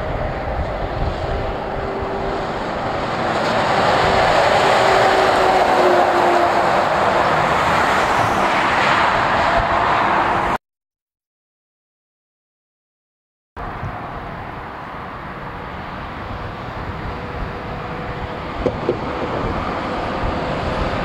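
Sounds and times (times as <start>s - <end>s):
heavy truck driving past: 0.0s - 8.5s
road traffic: 0.0s - 10.6s, 13.6s - 21.0s.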